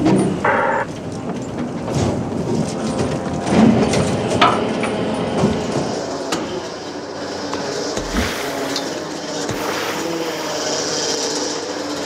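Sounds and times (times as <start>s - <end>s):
boat engine running: 0.4s - 1.2s, 5.0s - 10.7s.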